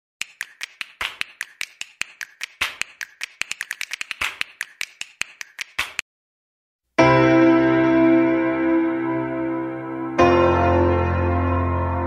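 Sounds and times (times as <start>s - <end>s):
rapid sharp clicks: 0.2s - 6.0s.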